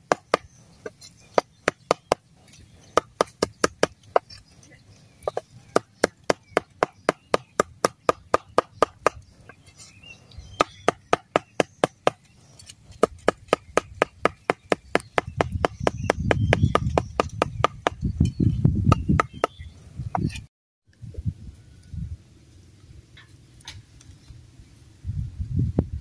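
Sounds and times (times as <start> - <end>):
cleaver chopping on wooden board: 0.0 - 0.5, 1.3 - 2.2, 2.8 - 4.4, 5.3 - 9.2, 10.6 - 12.3, 12.9 - 18.0, 18.9 - 19.6.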